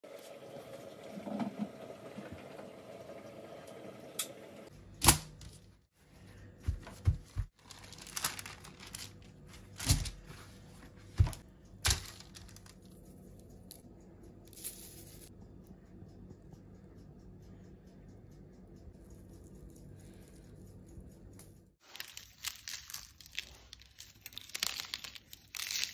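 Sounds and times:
faint handling sounds: 0:06.0 - 0:13.8, 0:19.8 - 0:25.9
tearing and crinkling rasps: 0:07.5 - 0:10.2, 0:11.9 - 0:13.0, 0:21.8 - 0:25.9.

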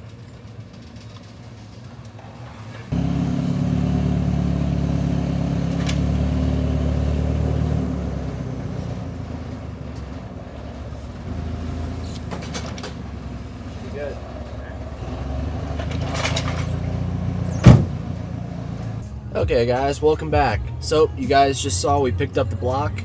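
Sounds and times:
forklift engine running: 0:02.9 - 0:19.3.

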